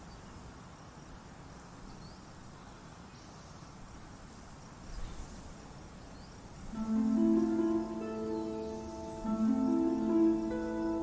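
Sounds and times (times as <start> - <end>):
faint steady hiss: 0.0 - 11.0
faint high chirps: 6.1 - 11.0.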